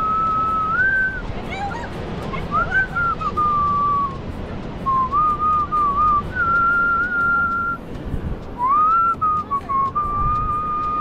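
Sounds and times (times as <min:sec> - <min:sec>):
person whistling a tune: 0:00.0 - 0:01.3, 0:02.5 - 0:04.2, 0:04.8 - 0:07.8, 0:08.6 - 0:11.0.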